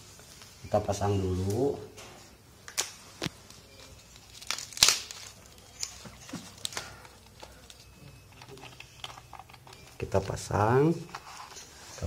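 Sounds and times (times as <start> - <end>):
plastic film crinkling: 2.6 - 12.0.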